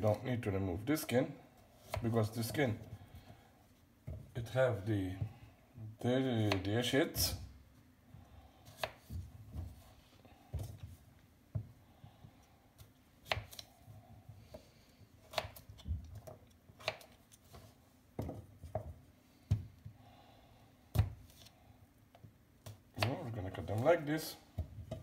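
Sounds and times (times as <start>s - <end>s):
knife cutting potatoes: 1.8s - 2.8s, 6.2s - 7.3s, 8.6s - 10.0s, 12.8s - 13.8s, 15.2s - 17.8s, 22.6s - 25.0s.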